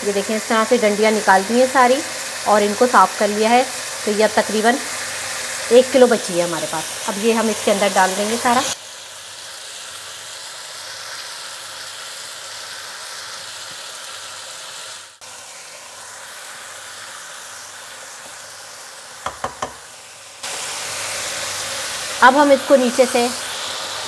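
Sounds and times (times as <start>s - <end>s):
potatoes sizzling in a pan: 0.0s - 24.0s
wooden spatula knocking on pan: 19.2s - 19.8s.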